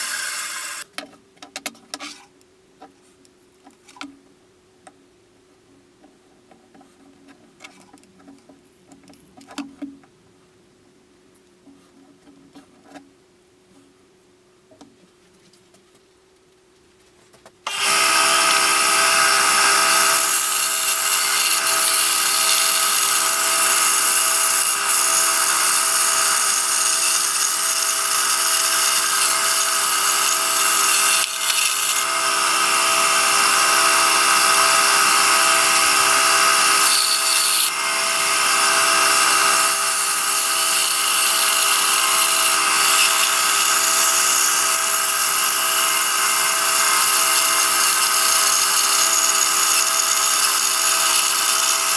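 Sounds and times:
saw blade rasping through wood: 0:00.0 - 0:00.8, 0:17.7 - 0:51.9
scroll saw motor humming: 0:00.0 - 0:00.8.

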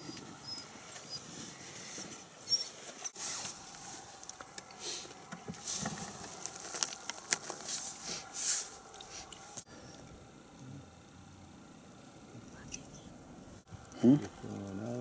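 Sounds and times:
plastic bags crinkling: 0:06.2 - 0:08.0.

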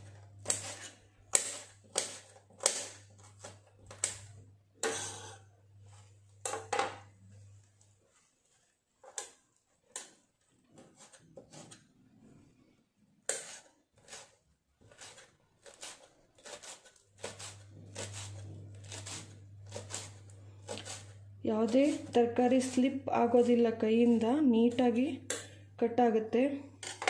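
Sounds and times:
low steady hum: 0:16.4 - 0:27.0.

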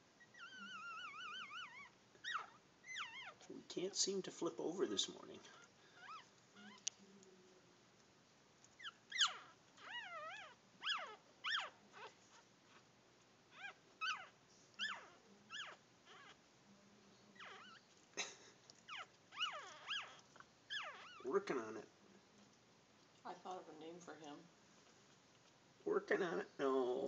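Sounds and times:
puppy squealing: 0:00.2 - 0:03.5, 0:05.5 - 0:06.8, 0:08.8 - 0:12.8, 0:13.5 - 0:16.4, 0:17.4 - 0:17.9, 0:18.8 - 0:21.4.

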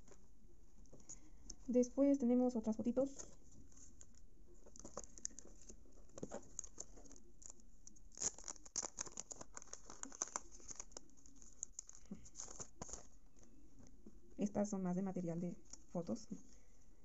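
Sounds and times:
photo prints rustling in plastic: 0:02.6 - 0:14.3.

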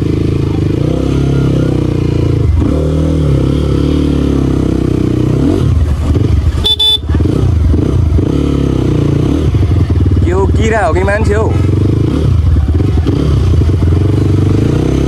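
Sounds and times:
dirt bike engine revving: 0:00.0 - 0:15.0
short high beep: 0:06.6 - 0:07.1.

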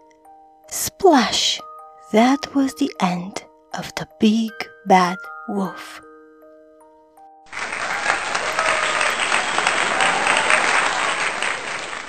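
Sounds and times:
applause: 0:07.5 - 0:12.0.

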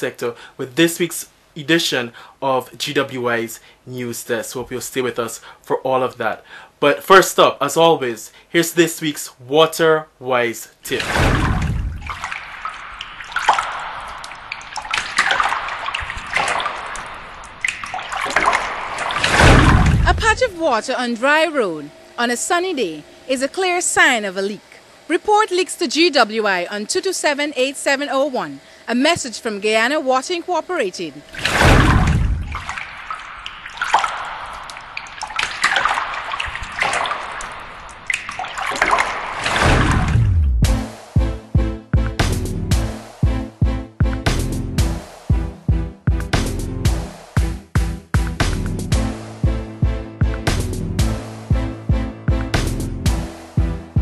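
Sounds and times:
running splashing water: 0:10.9 - 0:20.8, 0:31.0 - 0:40.5.

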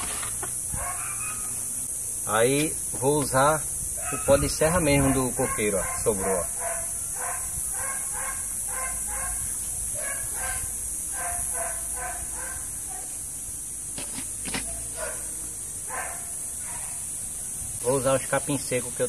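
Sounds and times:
high-pitched hiss: 0:00.0 - 0:19.0
short animal calls: 0:00.7 - 0:01.7.

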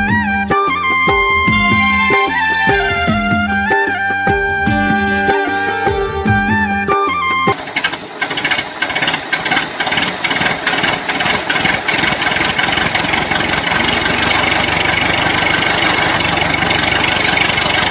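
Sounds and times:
small engine idling: 0:07.5 - 0:17.9.

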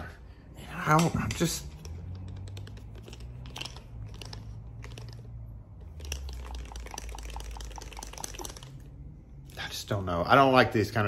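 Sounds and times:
low steady hum: 0:00.0 - 0:11.0
screwdriver clicking and rattling: 0:00.8 - 0:08.9.

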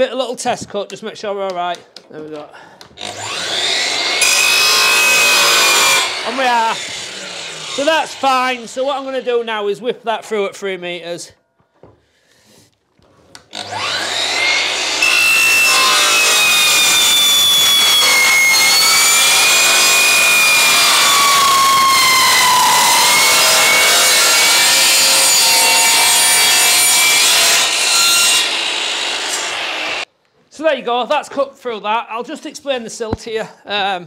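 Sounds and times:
saw blade screeching through metal: 0:03.0 - 0:08.8, 0:13.6 - 0:29.6
mitre saw spinning up: 0:13.6 - 0:24.9.

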